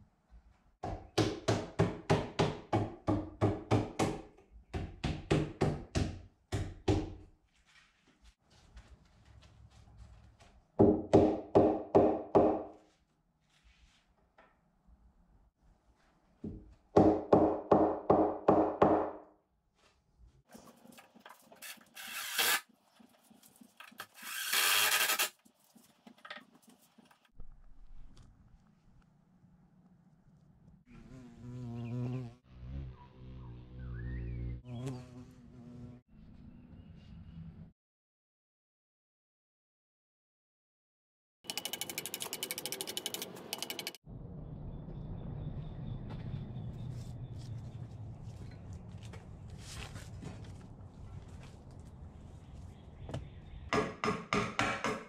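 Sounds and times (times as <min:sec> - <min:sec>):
hammer knocking on wood: 0:00.8 - 0:07.2, 0:10.8 - 0:12.7, 0:53.1 - 0:55.0.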